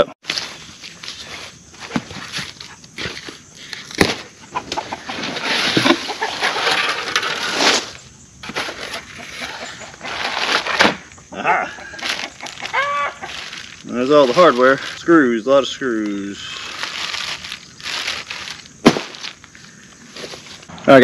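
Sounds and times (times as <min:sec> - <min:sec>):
chickens clucking: 0:04.2 - 0:07.3, 0:08.6 - 0:10.4, 0:11.6 - 0:14.7
packaging rustling: 0:12.0 - 0:15.1, 0:15.8 - 0:20.7.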